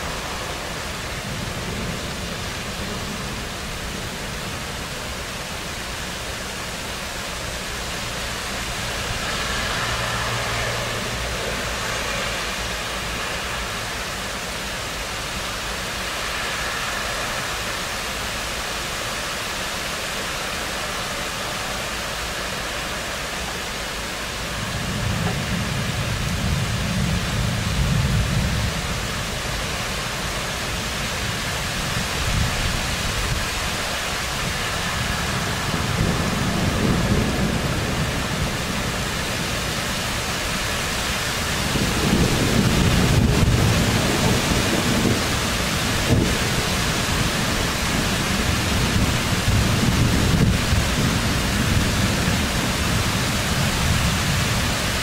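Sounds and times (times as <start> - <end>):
rain falling: 0.0 - 55.0
thunder rolling: 34.4 - 40.7, 41.3 - 54.8.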